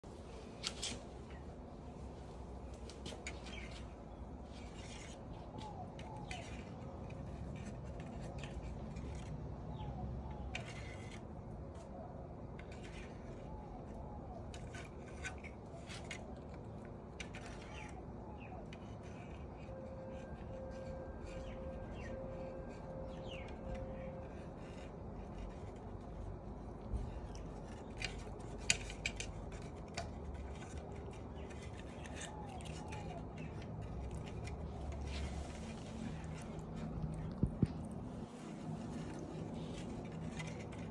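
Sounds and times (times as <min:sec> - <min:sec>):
small birds chirping: 0:21.3 - 0:24.2.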